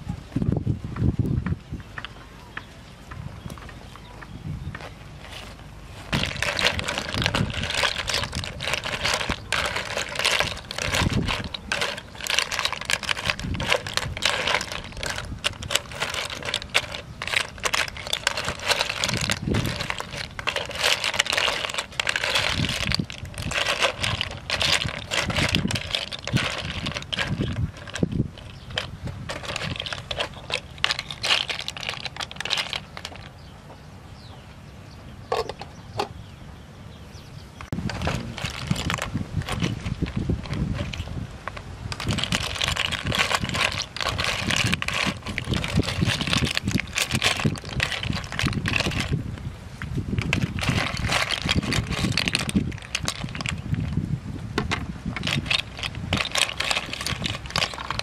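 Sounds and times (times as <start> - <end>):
snail shells rattling in metal pot: 6.1 - 33.3, 37.8 - 49.4, 50.1 - 54.0, 54.6 - 58.0.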